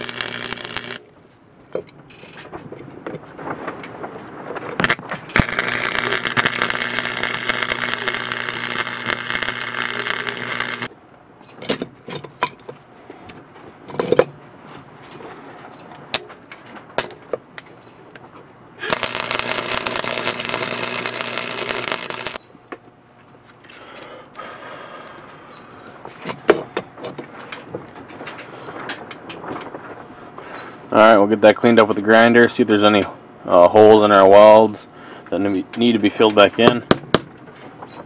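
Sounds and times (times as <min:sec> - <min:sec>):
welder arc crackling: 0:00.0 - 0:01.1, 0:04.8 - 0:10.9, 0:17.0 - 0:17.2, 0:18.8 - 0:22.4.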